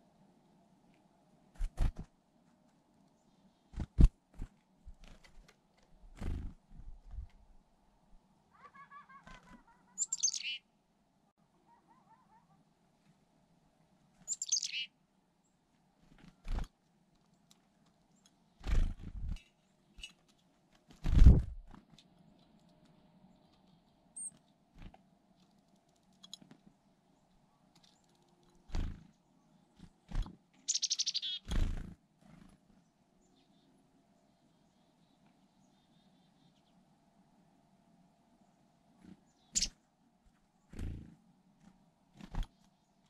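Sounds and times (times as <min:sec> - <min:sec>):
chickadee calls: 0:08.5 - 0:10.6, 0:14.3 - 0:14.9, 0:30.6 - 0:31.6, 0:39.4 - 0:39.8.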